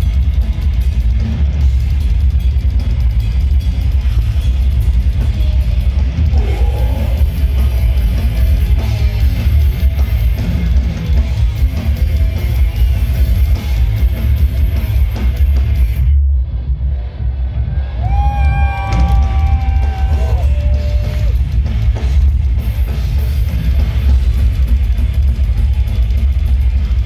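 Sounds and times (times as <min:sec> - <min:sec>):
drum kit pounding: 0:00.0 - 0:16.2, 0:18.0 - 0:27.0
distorted electric guitars: 0:00.0 - 0:27.0
low rumble: 0:13.4 - 0:22.8.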